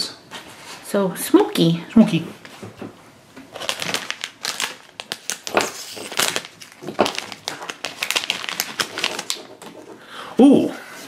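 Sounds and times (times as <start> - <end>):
foil packet crinkling: 3.5 - 10.0.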